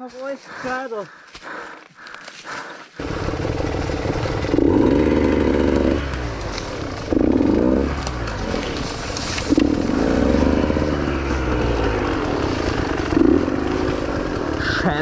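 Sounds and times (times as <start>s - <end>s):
dirt bike engine revving: 3.0s - 15.0s.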